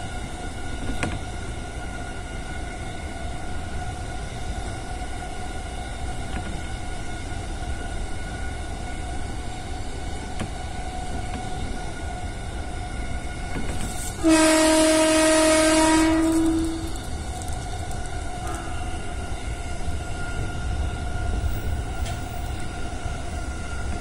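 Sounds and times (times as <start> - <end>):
train running noise: 0.0 - 24.0
train horn blast: 14.0 - 17.1, 18.4 - 19.2.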